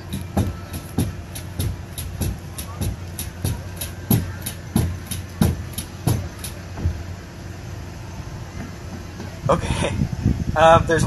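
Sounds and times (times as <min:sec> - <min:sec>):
pogo stick bouncing: 0:00.0 - 0:07.0.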